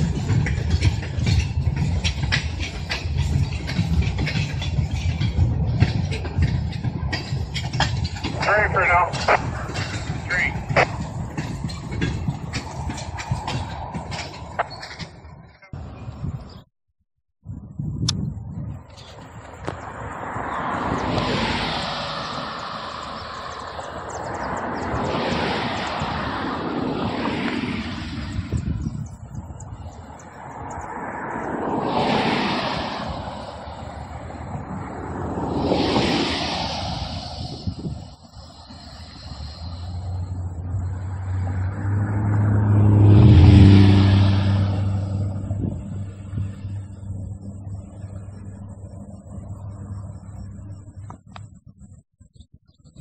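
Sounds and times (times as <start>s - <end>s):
rushing noise of passing train: 0.0s - 16.6s, 17.5s - 52.0s
diesel locomotive engines rumbling: 0.0s - 16.7s, 17.4s - 53.0s
rushing hiss: 35.7s - 40.6s.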